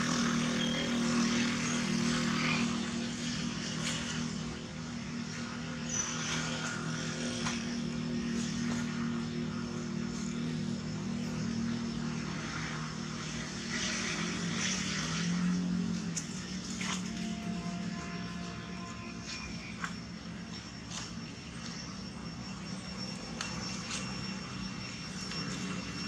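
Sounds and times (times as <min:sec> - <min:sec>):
distant engine droning: 0:00.0 - 0:26.0.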